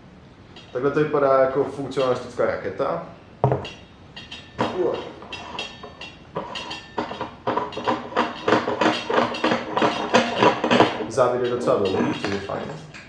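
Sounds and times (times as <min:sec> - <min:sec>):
knock: 0:03.4 - 0:03.8
metal threads rasping and clicking: 0:03.6 - 0:13.0.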